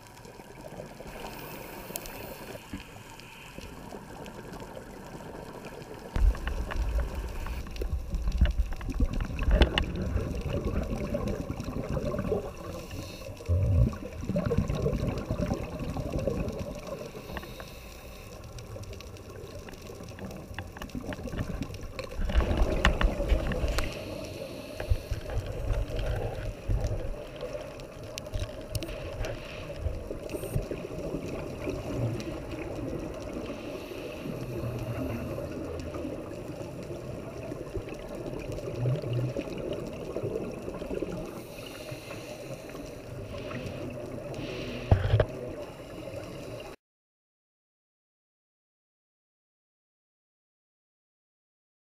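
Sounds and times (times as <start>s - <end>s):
muffled underwater water rushing: 0.0s - 46.8s
regulator bubbles bubbling: 4.0s - 17.6s, 18.5s - 24.1s, 34.3s - 41.6s.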